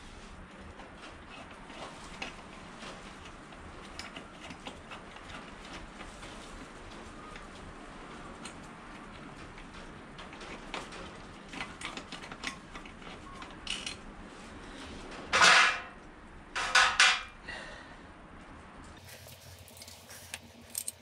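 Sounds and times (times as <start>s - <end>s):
metal tools clinking: 19.2s - 21.0s.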